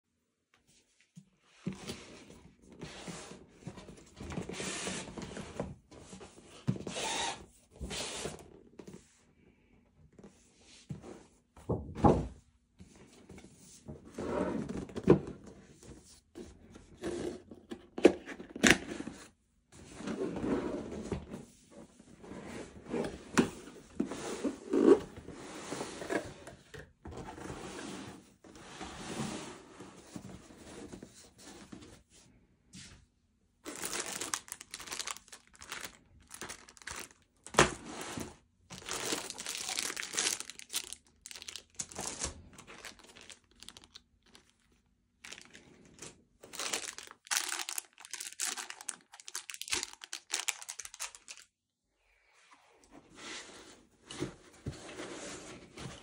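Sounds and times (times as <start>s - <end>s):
plastic bags crinkling: 33.6s - 37.8s, 38.7s - 51.5s.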